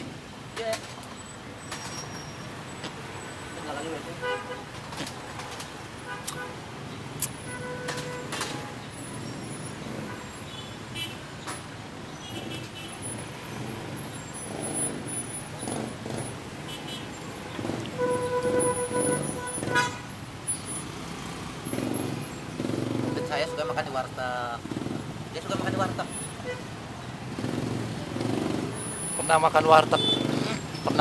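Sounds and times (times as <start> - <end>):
road traffic passing: 0.0 - 31.0
vehicle horn: 4.2 - 4.7, 7.4 - 8.8, 17.9 - 20.1, 23.1 - 24.0, 26.4 - 26.7, 29.9 - 30.6.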